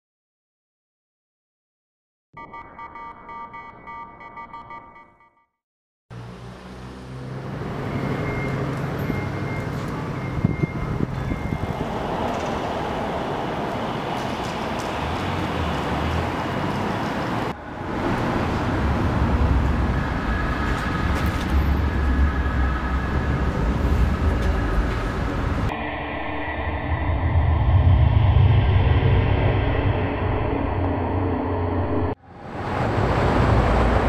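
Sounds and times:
urban traffic roar: 0:06.1 - 0:25.8, 0:26.9 - 0:34.0
heavy low rumble: 0:10.4 - 0:34.0.

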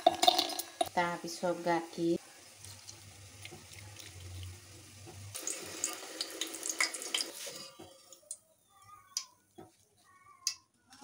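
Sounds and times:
potatoes sizzling in hot oil: 0:00.0 - 0:07.8.

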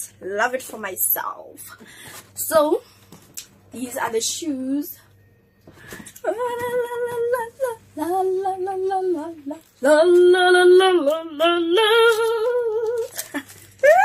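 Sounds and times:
woman singing: 0:05.9 - 0:14.0.

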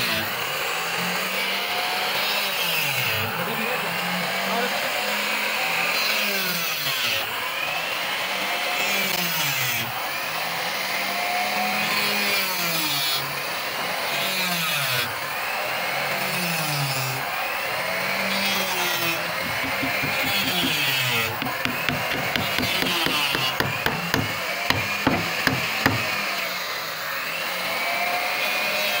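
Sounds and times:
router cutting wood: 0:16.1 - 0:29.0.

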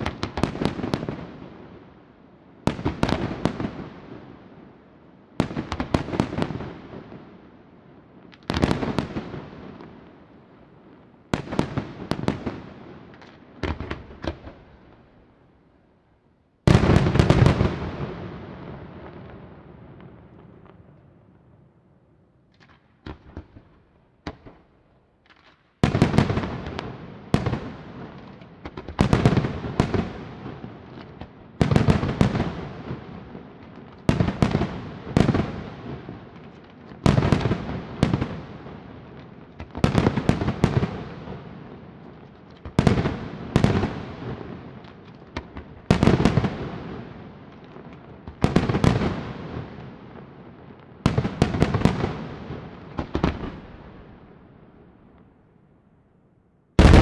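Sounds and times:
echoing firework crackle: 0:00.0 - 0:15.4, 0:16.6 - 0:21.6, 0:22.5 - 0:55.3, 0:56.7 - 0:57.0
firework shells bursting: 0:56.8 - 0:57.0.

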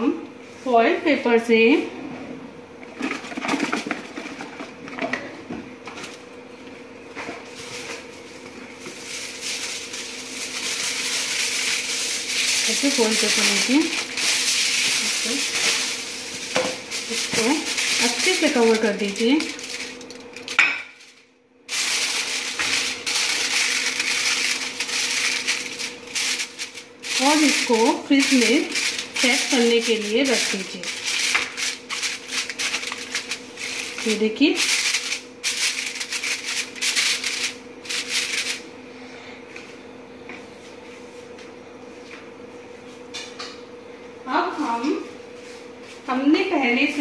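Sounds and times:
aluminium foil crinkling: 0:07.4 - 0:38.7.

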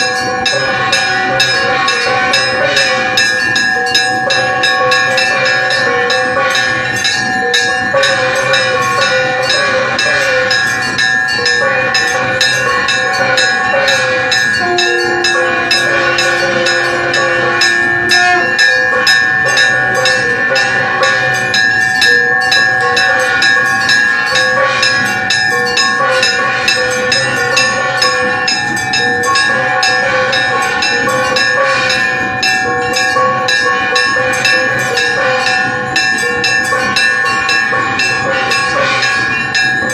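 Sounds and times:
steady held tones: 0:00.0 - 0:39.9
temple bells clanging: 0:00.0 - 0:39.9
lower held note: 0:14.6 - 0:19.2.

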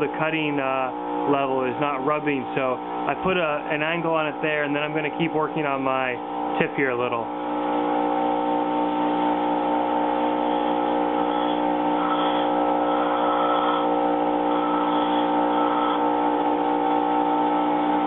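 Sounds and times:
grinder motor humming: 0:00.0 - 0:18.0
steel grinding on wheel: 0:10.5 - 0:16.6.

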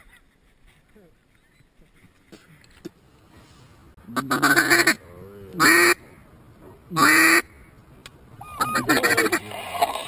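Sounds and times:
duck call quacks: 0:04.2 - 0:05.0, 0:05.6 - 0:06.0, 0:07.0 - 0:07.5, 0:08.4 - 0:09.4.

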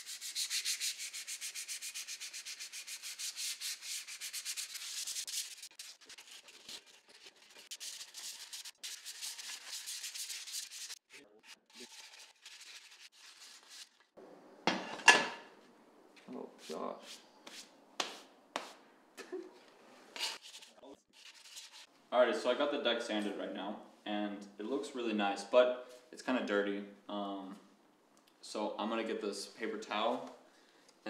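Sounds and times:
sanding sponge scratching metal: 0:00.0 - 0:14.0, 0:20.2 - 0:21.9.

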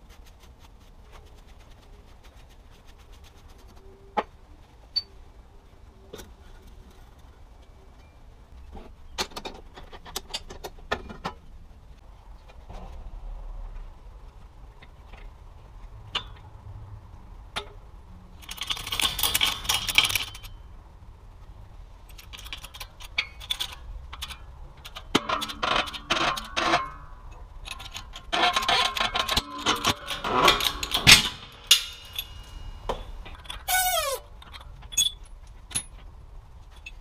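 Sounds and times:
metal clinking and scraping: 0:18.4 - 0:20.7, 0:22.1 - 0:37.0
rapid metal clatter: 0:22.1 - 0:33.7.

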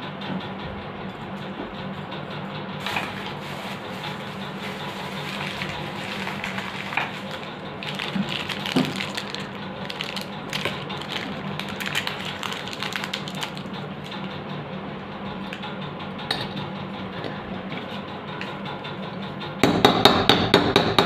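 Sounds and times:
steady low hum: 0:00.0 - 0:19.6
plastic packets crinkling: 0:02.8 - 0:14.4.

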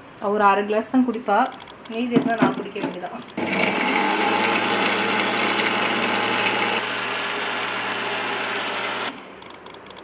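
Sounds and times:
mixer grinder humming: 0:03.4 - 0:09.3.

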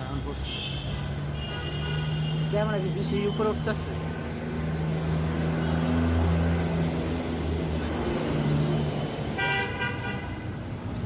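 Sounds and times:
vehicle horn: 0:00.4 - 0:02.6, 0:09.3 - 0:10.6.

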